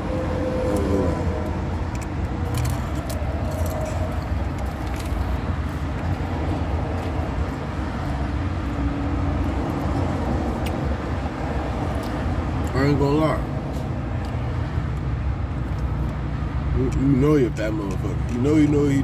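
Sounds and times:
potato chip crunching: 1.8 - 6.1.

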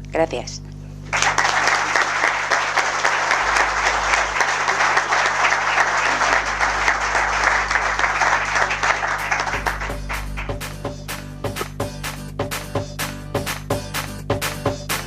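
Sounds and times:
audience applauding: 1.1 - 10.9.

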